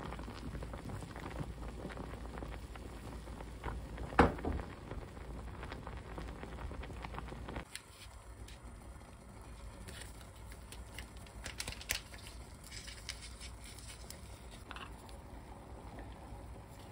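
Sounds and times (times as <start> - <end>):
water boiling and bubbling: 0.0 - 16.9.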